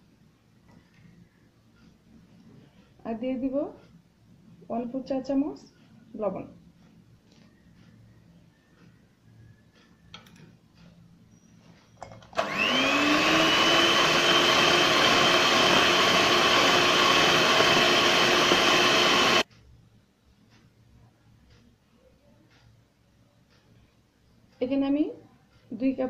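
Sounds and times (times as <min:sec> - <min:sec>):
electric hand mixer whining: 0:12.4 - 0:19.4.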